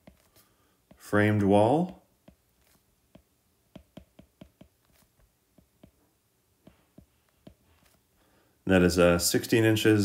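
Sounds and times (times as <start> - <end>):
stylus tapping on glass screen: 3.1 - 4.8.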